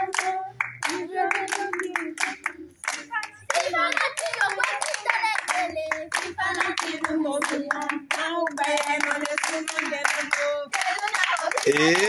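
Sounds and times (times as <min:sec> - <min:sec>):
girls singing together: 0:00.0 - 0:11.7
hands clapping rhythmically: 0:00.0 - 0:12.0.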